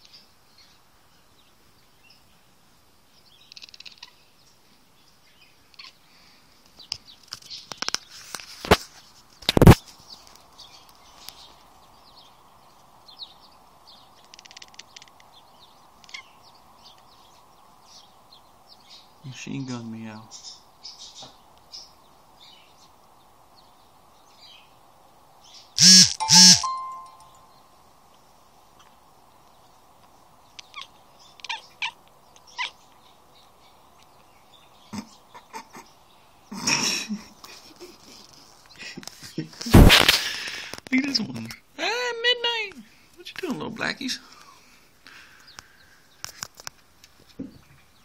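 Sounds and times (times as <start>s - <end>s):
high bird chirps: 25.5s - 27.7s
cat chattering: 30.6s - 32.8s.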